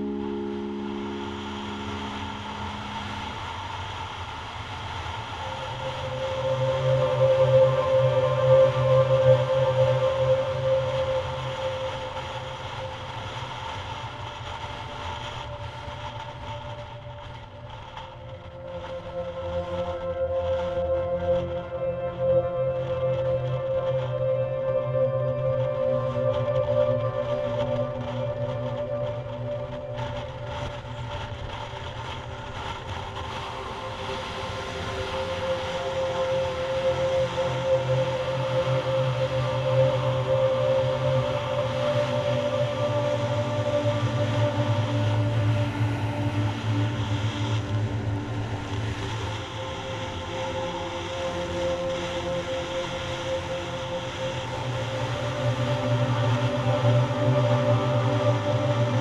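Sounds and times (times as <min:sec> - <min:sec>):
wind rush: 0:00.0 - 0:23.0, 0:26.0 - 0:59.0.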